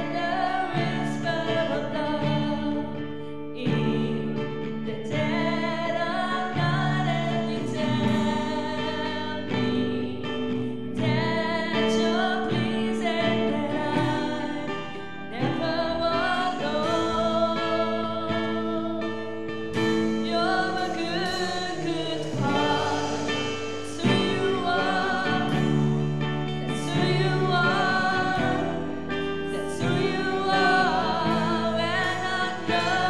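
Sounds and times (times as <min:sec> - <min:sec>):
guitars: 0:00.0 - 0:33.0
woman singing: 0:00.0 - 0:33.0
drums: 0:19.2 - 0:33.0.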